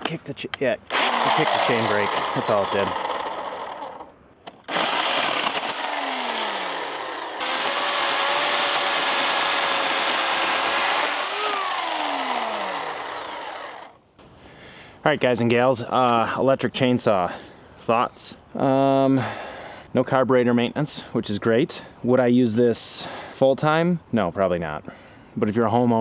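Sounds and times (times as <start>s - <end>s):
electric chainsaw cutting log: 0.9s - 14.0s.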